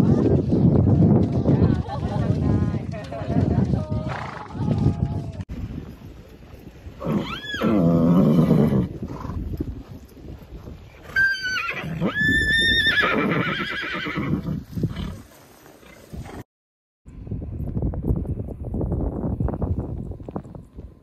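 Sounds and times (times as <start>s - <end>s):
horse whinnying: 7.0s - 9.4s, 11.0s - 15.2s.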